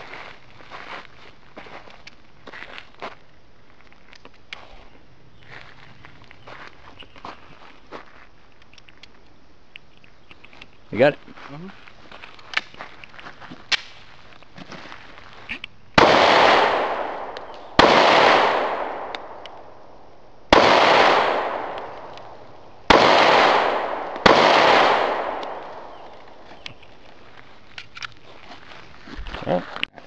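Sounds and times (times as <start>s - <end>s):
pistol shots echoing: 16.0s - 26.6s.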